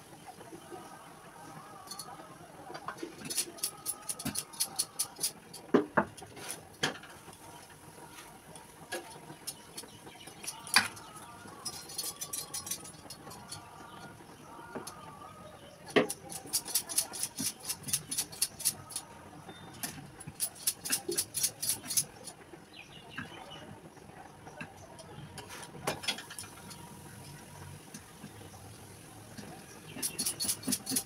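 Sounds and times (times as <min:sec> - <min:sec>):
utensil clicks and scrapes: 0:01.8 - 0:15.0, 0:15.9 - 0:22.4, 0:29.3 - 0:31.0.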